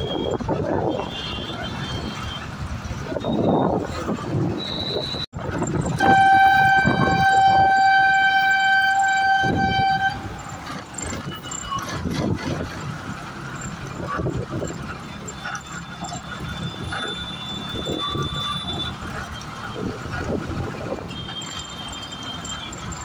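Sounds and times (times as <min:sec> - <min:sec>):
city traffic: 0:00.0 - 0:23.0
vehicle horn steady note: 0:06.0 - 0:10.5.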